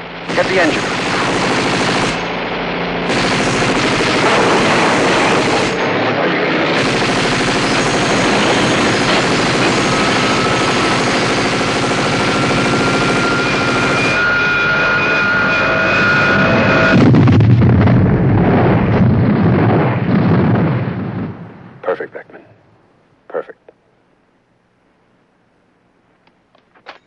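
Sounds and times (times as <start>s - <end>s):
machine gun firing rapidly: 0.3s - 2.4s, 3.0s - 14.2s
high whine rising in pitch: 7.6s - 19.1s.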